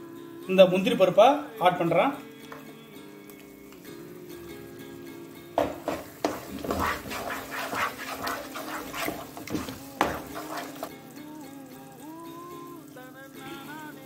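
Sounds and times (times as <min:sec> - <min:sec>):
spatula knocking against pan: 0:05.6 - 0:10.9
spatula scraping thick dough: 0:05.8 - 0:10.9.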